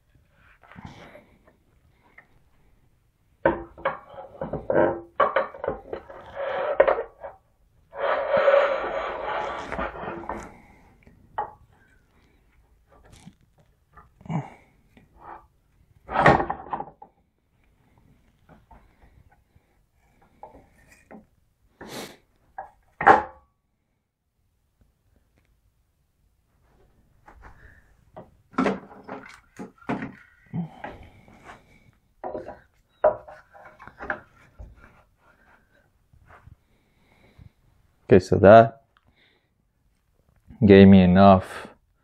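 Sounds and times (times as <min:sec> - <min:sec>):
metal scraping rasp: 0:05.6 - 0:10.6.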